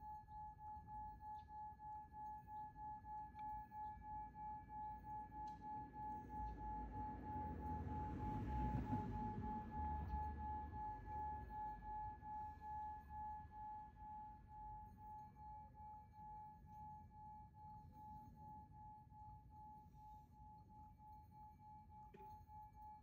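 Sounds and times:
sustained pulsing ringing tone: 0.0 - 23.0
low hum: 3.4 - 16.3.

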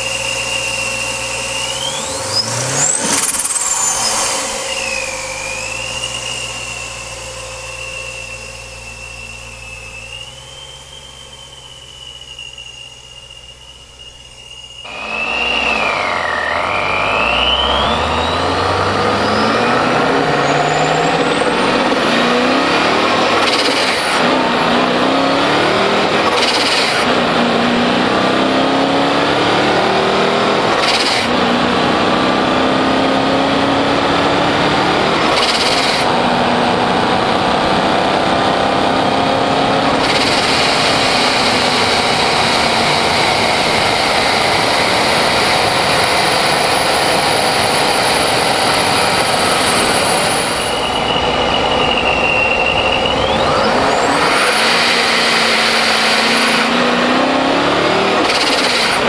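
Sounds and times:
car engine accelerating: 0.0 - 59.0
supercharger whine: 0.0 - 59.0.

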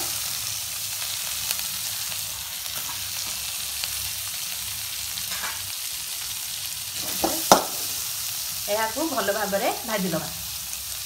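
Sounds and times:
onion sizzling in oil: 0.0 - 11.0.

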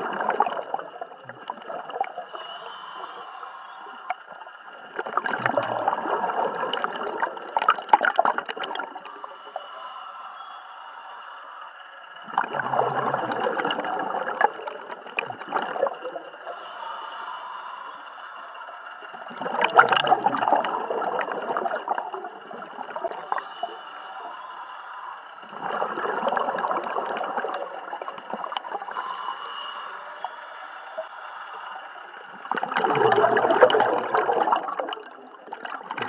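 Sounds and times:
exhaled bubbles gurgling underwater: 0.0 - 10.5, 12.2 - 18.1, 18.8 - 36.0
regulator hiss: 2.3 - 4.8, 9.0 - 12.2, 16.4 - 19.3, 23.0 - 25.5, 28.9 - 32.5
faint steady high tone: 9.6 - 11.7.

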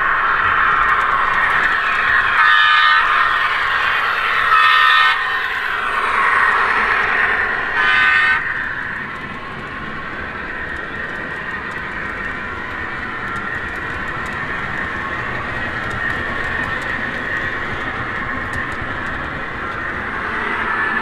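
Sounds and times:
wheels rolling on track: 0.0 - 21.0
model locomotive horn: 2.1 - 5.3, 7.6 - 8.4.

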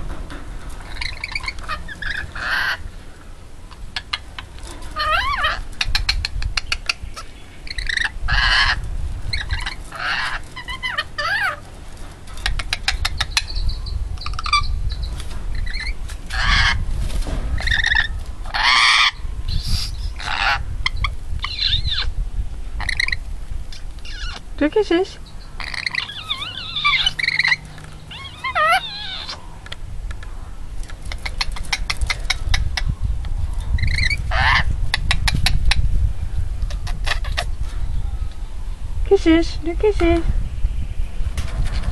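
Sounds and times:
parrot screeching and chattering: 0.8 - 2.9, 3.7 - 11.7, 12.4 - 16.8, 17.6 - 22.2, 22.8 - 24.5, 25.4 - 29.6, 31.0 - 32.9, 33.7 - 35.9, 36.7 - 37.6.

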